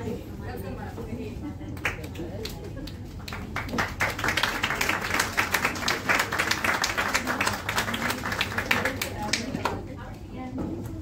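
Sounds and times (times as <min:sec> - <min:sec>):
audience clapping: 0:01.8 - 0:09.9.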